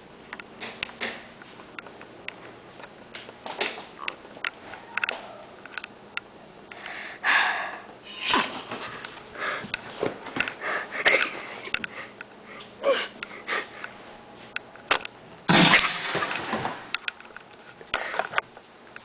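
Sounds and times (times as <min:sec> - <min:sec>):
person huffing and gasping: 0:10.6 - 0:13.9.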